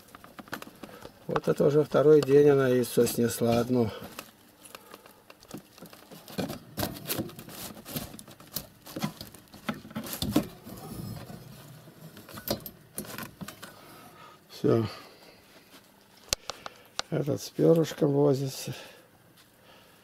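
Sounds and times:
rustling: 0.0s - 14.0s.

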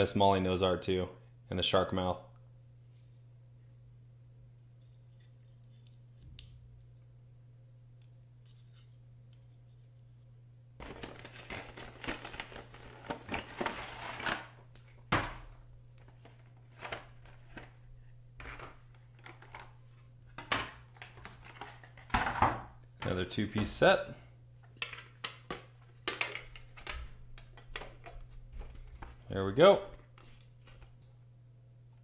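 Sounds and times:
plastic packaging crinkling: 10.8s - 15.0s.

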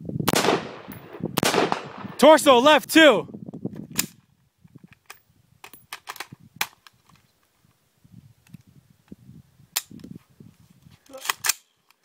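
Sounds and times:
rifle shots: 0.3s - 2.3s.

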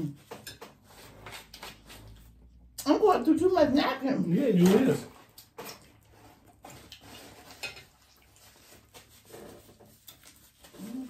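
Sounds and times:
person chewing: 5.1s - 8.9s.

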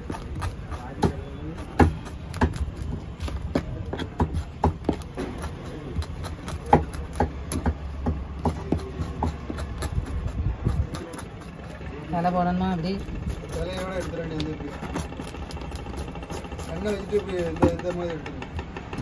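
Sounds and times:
knife scraping fish on wooden board: 0.0s - 7.8s, 8.4s - 11.8s, 12.7s - 17.9s.

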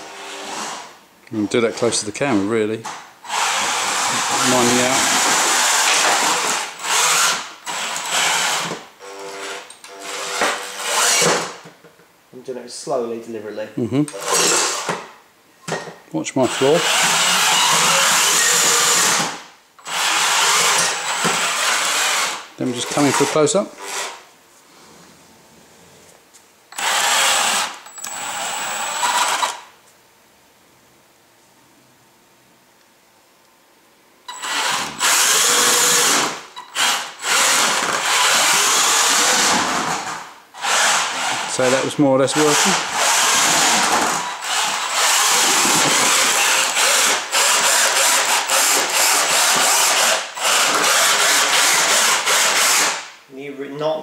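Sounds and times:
electric motors whining: 3.2s - 11.4s, 16.5s - 24.1s, 26.7s - 29.6s, 34.3s - 52.6s.

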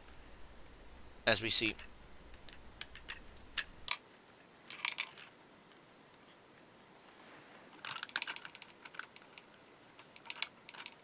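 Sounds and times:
small plastic clicks and crackles: 4.7s - 5.3s, 7.7s - 11.0s.

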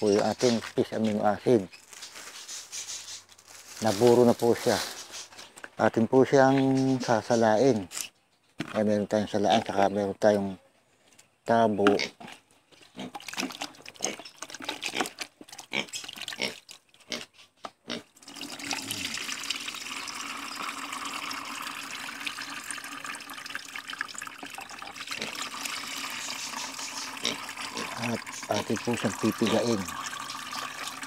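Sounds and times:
liquid splashing in bucket: 13.0s - 17.1s, 18.1s - 31.0s
liquid pouring through strainer: 13.1s - 16.8s, 18.2s - 31.0s.

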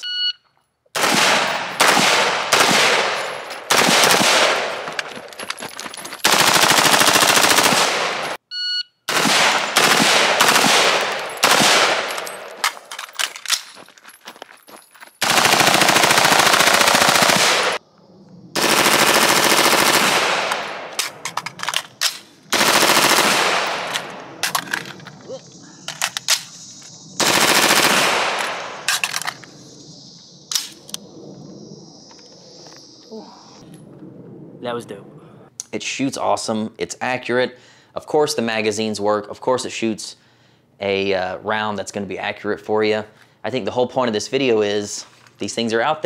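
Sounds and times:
rifle firing full-auto bursts: 1.0s - 5.1s, 6.2s - 8.4s, 9.1s - 12.7s, 15.2s - 17.8s, 18.6s - 21.8s, 22.5s - 24.6s, 27.2s - 29.2s.

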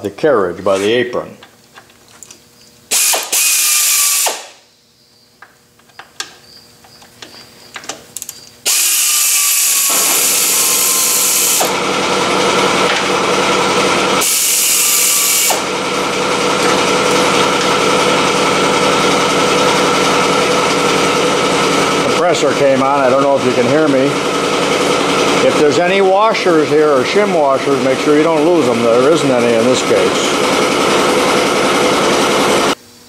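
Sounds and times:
cordless drill running: 2.9s - 4.6s, 8.6s - 22.2s, 22.8s - 26.2s, 29.5s - 32.8s
loud steady machine noise: 2.9s - 4.6s, 8.6s - 32.8s.

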